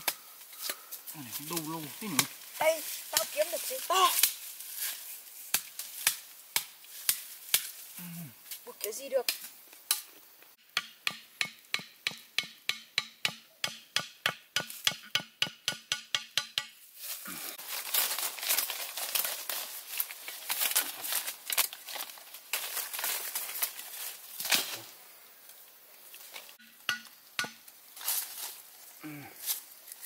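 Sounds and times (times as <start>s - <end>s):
rustling leaves and twigs: 0.0s - 10.6s, 16.8s - 30.0s
machete chopping: 5.5s - 7.8s, 10.8s - 16.8s, 26.6s - 27.6s.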